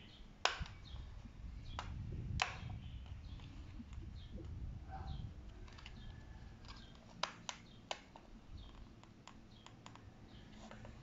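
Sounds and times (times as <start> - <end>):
sharp plastic snaps: 0.4 - 1.0, 1.7 - 4.6, 5.4 - 10.1
plastic clicks and ticks: 5.5 - 10.0.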